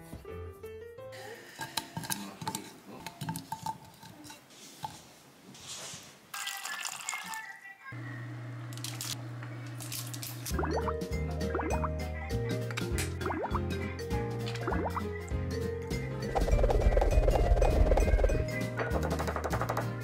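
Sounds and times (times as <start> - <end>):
soft background music: 0.0 - 1.5, 10.5 - 20.0.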